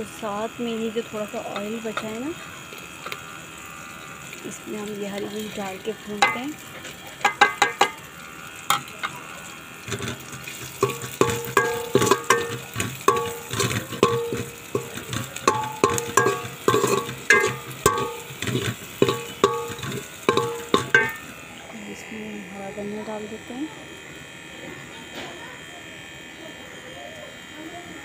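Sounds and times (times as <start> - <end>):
faint frying sizzle: 0.0 - 28.0
metal spoon clanking in pot: 6.2 - 6.5, 7.2 - 8.0, 9.9 - 21.3.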